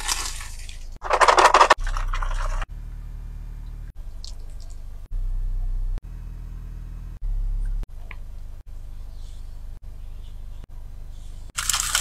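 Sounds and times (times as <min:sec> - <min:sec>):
crunching fried chicken: 0:11.6 - 0:12.0.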